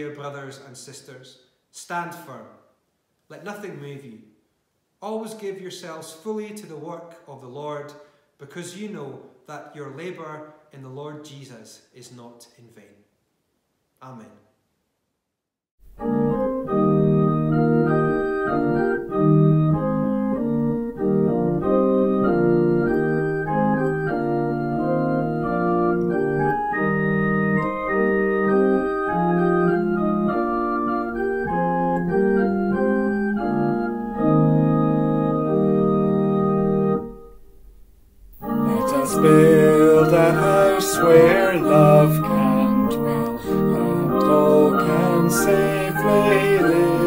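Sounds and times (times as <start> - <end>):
organ playing hymn chords: 15.8 - 37.5, 38.4 - 47.0.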